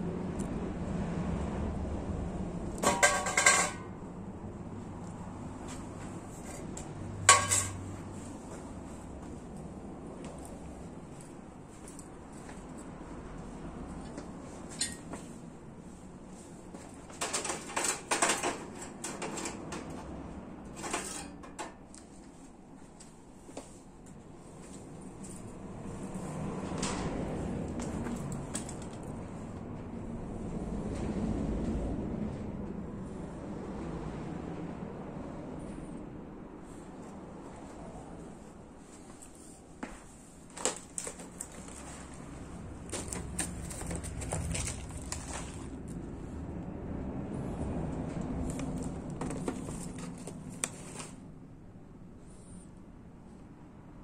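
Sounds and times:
hard objects clicking and rattling: 0:02.7 - 0:03.9, 0:06.4 - 0:07.9, 0:17.1 - 0:21.9, 0:40.5 - 0:45.9.

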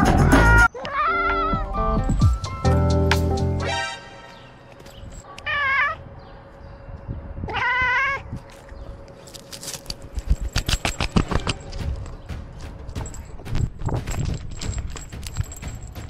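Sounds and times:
cat meowing: 0:07.5 - 0:08.3
dry leaves crackling and rustling: 0:08.4 - 0:11.7.

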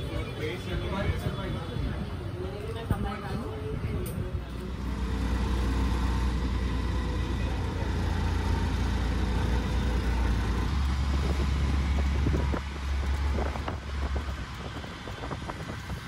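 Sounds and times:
road and wind noise: 0:00.0 - 0:16.0
vehicle interior rumble: 0:03.9 - 0:16.0.

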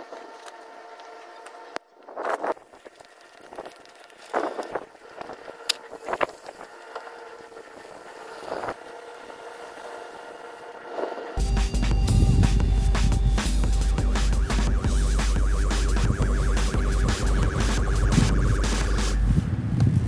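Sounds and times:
footsteps on grass and dirt: 0:00.0 - 0:07.2
motor hum with steady tones: 0:00.0 - 0:19.4.

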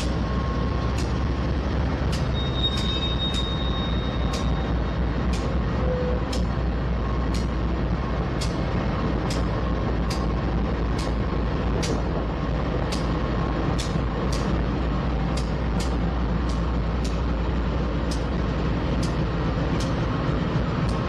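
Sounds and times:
diesel locomotive engines rumbling: 0:00.0 - 0:21.0
sharp ticks: 0:04.2 - 0:04.7, 0:09.2 - 0:10.3, 0:10.9 - 0:11.2, 0:11.8 - 0:12.1, 0:18.1 - 0:18.4.

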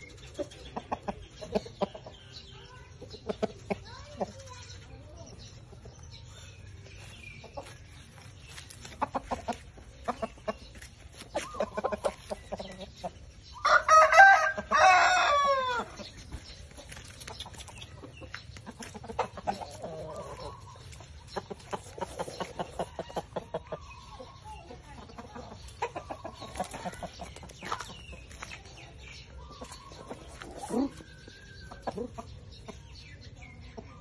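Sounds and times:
chicken clucking: 0:00.0 - 0:34.0
rooster crowing: 0:13.6 - 0:15.8.

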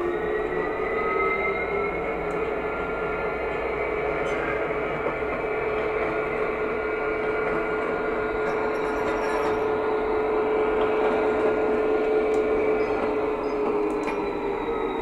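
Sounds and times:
wheels creaking on rails: 0:03.5 - 0:15.0.

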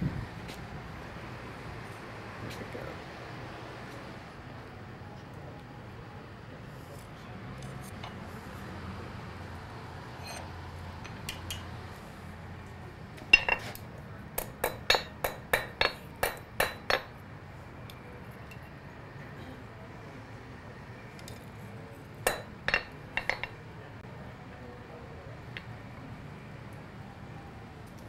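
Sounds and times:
hammer striking iron on anvil: 0:13.3 - 0:13.7, 0:14.4 - 0:17.2, 0:22.3 - 0:23.6.

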